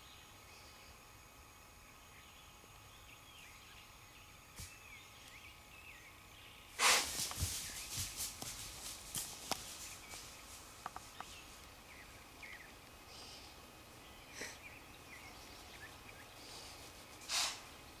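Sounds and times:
soft rustle: 0:06.8 - 0:12.0
faint bird chirps: 0:09.6 - 0:16.8.

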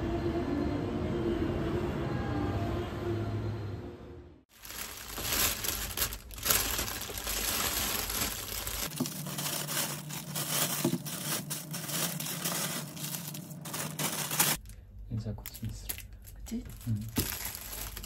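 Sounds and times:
cellophane wrappers crinkling: 0:04.5 - 0:14.8, 0:15.4 - 0:18.0
plastic bag rustling: 0:04.5 - 0:14.8, 0:15.9 - 0:18.0.

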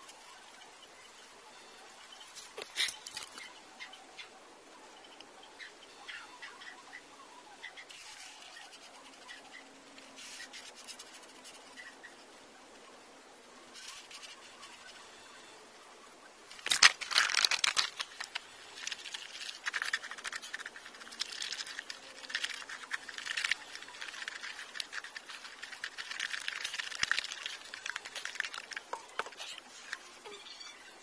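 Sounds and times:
scraping and rustling: 0:16.5 - 0:30.2.

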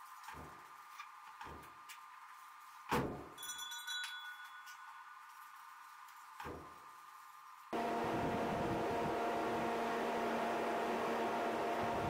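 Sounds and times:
short metallic ring: 0:03.4 - 0:05.2
steady hum: 0:07.8 - 0:12.0.

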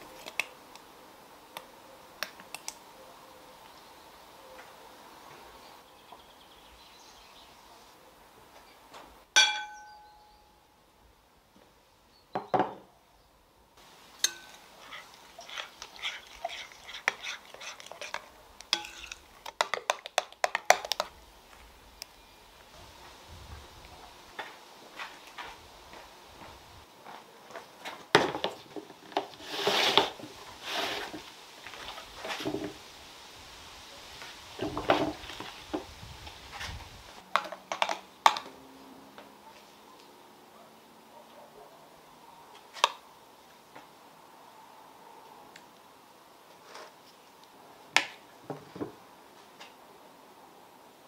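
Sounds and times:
glass kitchenware clinking: 0:09.4 - 0:10.1, 0:14.2 - 0:16.6
batter mixed in glass bowl: 0:14.2 - 0:21.1.

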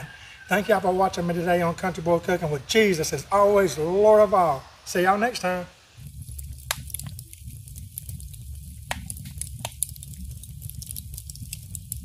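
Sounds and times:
fire crackling and popping: 0:00.9 - 0:12.0
low rumble: 0:06.0 - 0:12.0.

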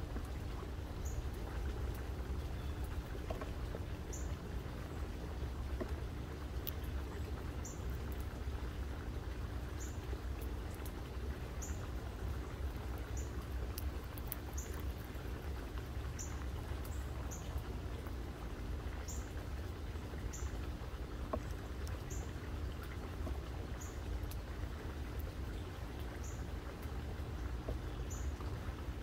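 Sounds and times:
low outdoor rumble: 0:00.0 - 0:29.0
faint clicks: 0:06.6 - 0:07.0, 0:13.4 - 0:15.1.

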